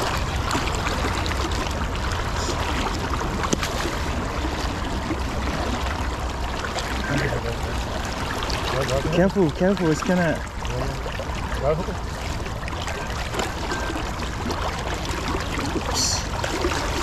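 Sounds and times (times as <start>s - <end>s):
fast river current rushing: 0.0s - 17.0s.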